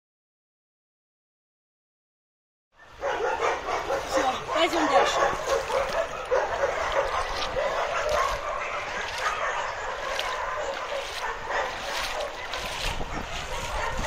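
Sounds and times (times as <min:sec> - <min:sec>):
many dogs barking and yelping: 0:02.8 - 0:14.0.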